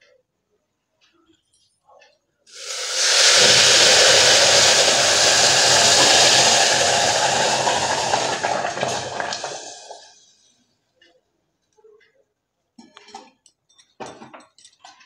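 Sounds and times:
water hissing and sizzling into steam: 2.5 - 10.2.

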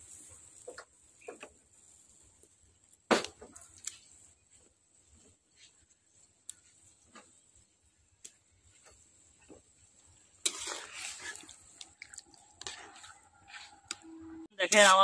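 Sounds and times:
liquid sloshing: 10.4 - 13.3
metal ladle scraping a pot: 10.4 - 14.4.

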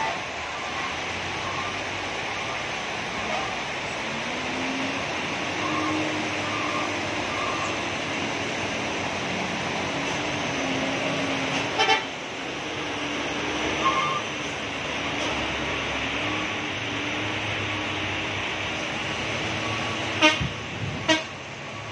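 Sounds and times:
rain and tyres hissing: 0.0 - 21.9
truck engines climbing: 0.0 - 21.9
horn toot: 20.2 - 21.3.

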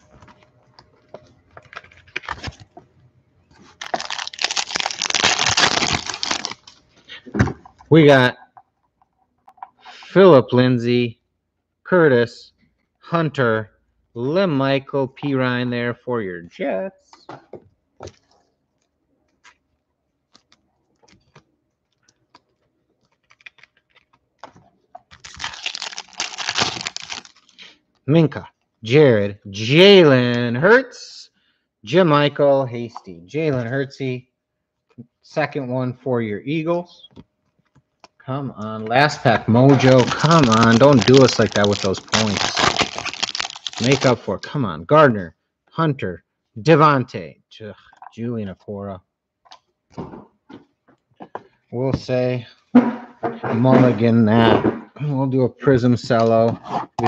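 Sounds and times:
card packaging crinkling: 1.5 - 2.8, 3.6 - 6.9, 20.3 - 27.6, 39.6 - 44.6.

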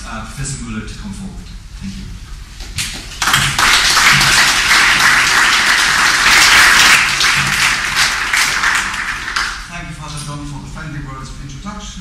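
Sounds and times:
audience applauding: 3.0 - 9.7.

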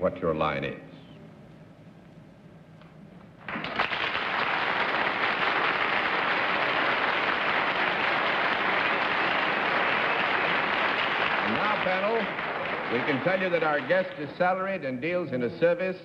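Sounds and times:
studio audience applauding: 3.4 - 14.7.

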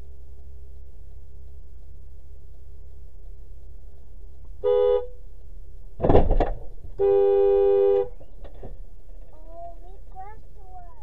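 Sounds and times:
car horn honking: 4.6 - 5.2, 7.0 - 8.2.

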